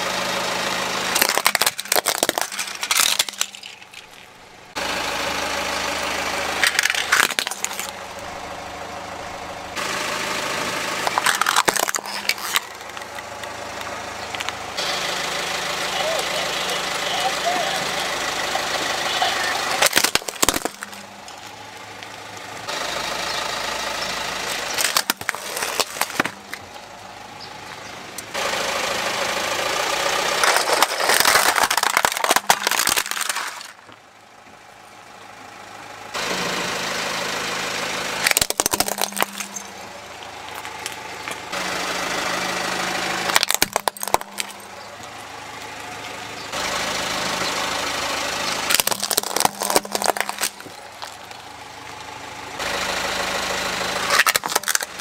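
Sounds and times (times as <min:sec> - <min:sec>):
car engine idling: 0:00.0 - 0:55.0
plastic cracking under tyre: 0:01.2 - 0:04.4, 0:06.6 - 0:08.0, 0:11.0 - 0:14.6, 0:19.8 - 0:22.3, 0:24.5 - 0:26.8, 0:30.3 - 0:34.0, 0:38.2 - 0:41.5, 0:43.3 - 0:45.7, 0:48.7 - 0:52.2, 0:54.1 - 0:55.0.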